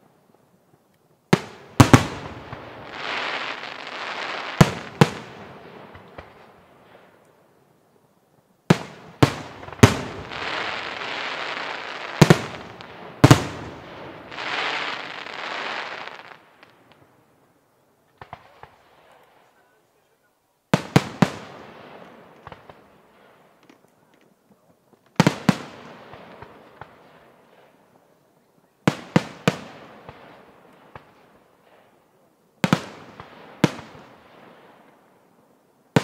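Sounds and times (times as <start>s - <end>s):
firework crackling hiss: 1.3s - 7.3s, 8.8s - 17.2s.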